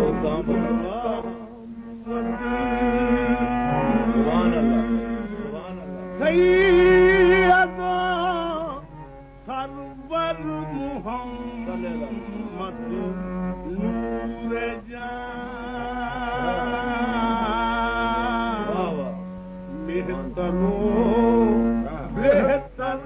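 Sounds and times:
harmonium drone: 0.0s - 23.0s
man singing ornamented runs: 0.0s - 23.0s.

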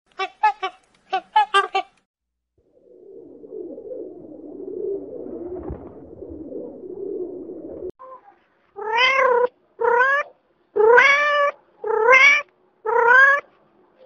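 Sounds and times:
kitten meowing: 8.8s - 13.4s.

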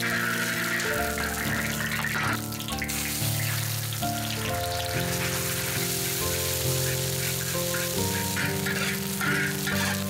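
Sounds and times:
background music held notes: 0.0s - 10.0s
oil sizzling in a wok: 0.0s - 10.0s.

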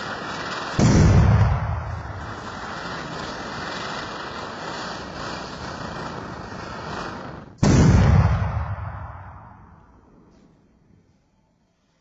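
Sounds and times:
ground firework hissing: 0.0s - 7.7s.

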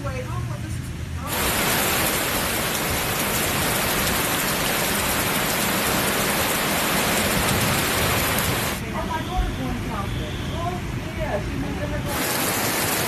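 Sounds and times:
floodwater rushing: 1.2s - 9.1s, 12.0s - 13.0s
heavy rain pouring: 1.2s - 10.0s, 10.6s - 13.0s.

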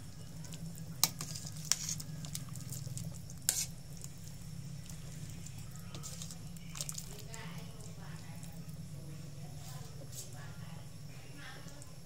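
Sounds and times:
ladle stirring soup: 0.0s - 10.4s
steady low hum: 0.0s - 12.0s.

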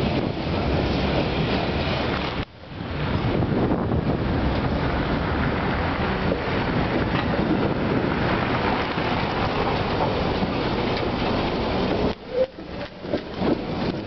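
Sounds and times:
wind on microphone: 0.0s - 14.0s
tram wheels clicking and knocking: 4.0s - 14.0s.

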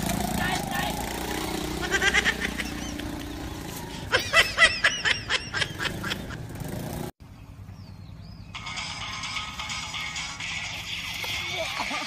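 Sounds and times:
street background: 0.0s - 12.0s
person laughing: 1.7s - 3.1s, 4.0s - 6.5s, 11.2s - 12.0s.

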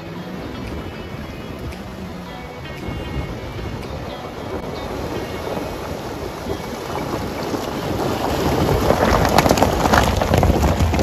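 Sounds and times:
vehicle driving off-road: 0.0s - 11.0s
dense crackle: 5.9s - 11.0s.

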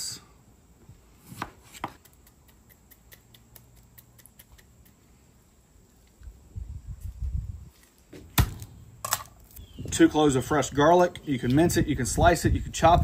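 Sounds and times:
fork twisting in lime ticking: 2.0s - 5.0s.

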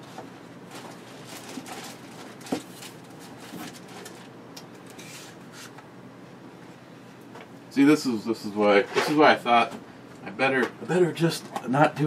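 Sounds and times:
packaging crinkling and rustling: 0.2s - 5.0s.

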